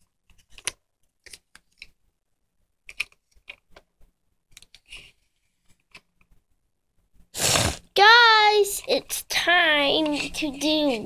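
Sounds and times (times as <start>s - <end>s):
brief scrape: 7.4s - 7.8s.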